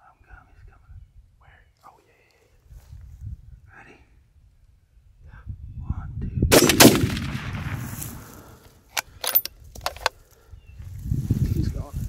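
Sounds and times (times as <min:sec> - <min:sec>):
gunshot with rolling echo: 0:06.5 - 0:08.6.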